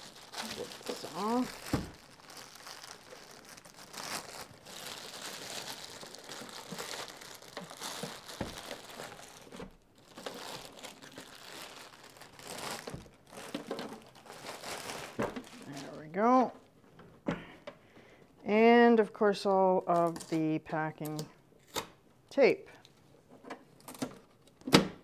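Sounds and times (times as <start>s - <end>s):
plastic bag crinkling: 0.0s - 16.4s.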